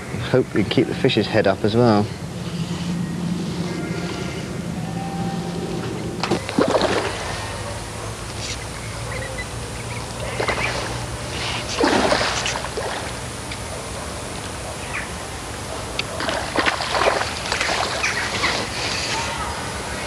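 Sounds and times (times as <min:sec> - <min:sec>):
steady low hum: 0:00.0 - 0:20.0
fish splashing at water surface: 0:06.2 - 0:07.8, 0:10.2 - 0:13.2, 0:16.1 - 0:19.0.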